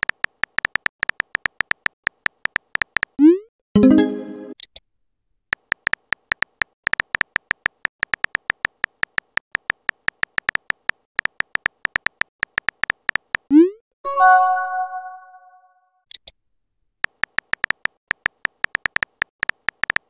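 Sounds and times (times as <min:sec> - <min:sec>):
phone keyboard typing clicks: 0:00.0 - 0:03.2, 0:05.6 - 0:13.5, 0:17.0 - 0:20.0.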